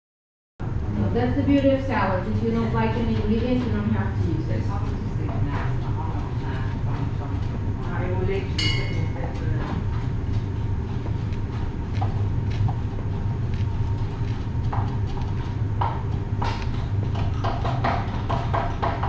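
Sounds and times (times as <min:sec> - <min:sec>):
steady low hum: 0:00.6 - 0:19.0
knife chopping on cutting board: 0:14.2 - 0:19.0.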